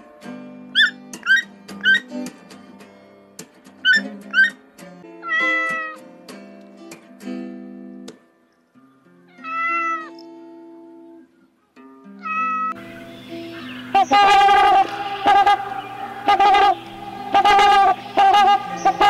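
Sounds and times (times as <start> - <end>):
acoustic guitar music: 0.0 - 19.0
cat meowing: 5.2 - 6.0, 9.3 - 10.2, 12.2 - 12.8
short high calls: 12.2 - 19.0.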